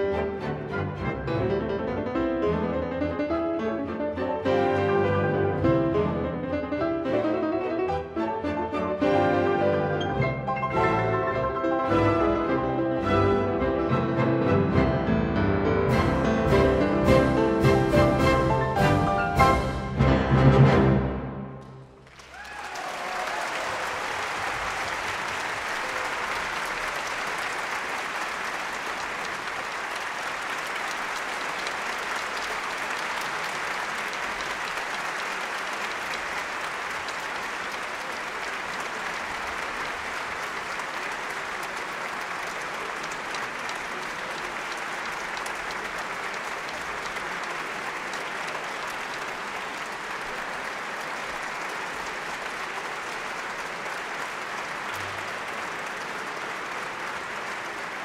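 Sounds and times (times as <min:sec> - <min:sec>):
audience applauding: 0:21.6 - 0:58.0.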